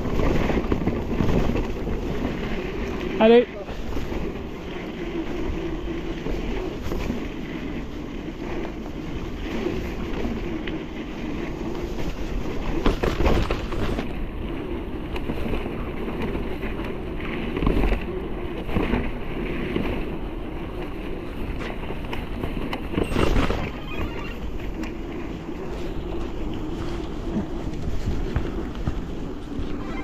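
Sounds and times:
tyre rumble: 0.0 - 30.0
wind on microphone: 0.0 - 30.0
bike knocks and rattles: 6.4 - 29.6.

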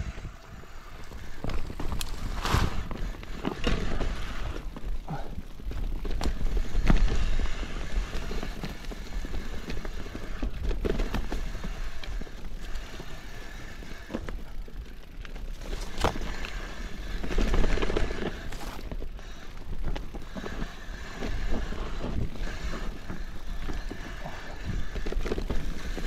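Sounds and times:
wind rumble on microphone: 0.0 - 5.4
bike knocking and rattling: 0.0 - 26.0
bike tyres over loose stones: 0.0 - 26.0.

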